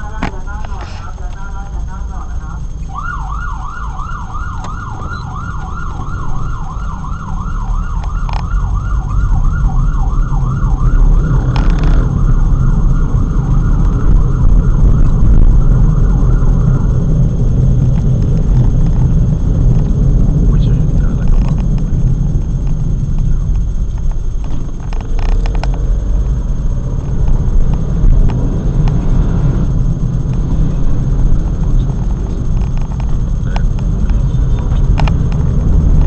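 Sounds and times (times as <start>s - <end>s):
traffic engines rumbling: 0.0s - 36.0s
siren yelping: 1.7s - 23.6s.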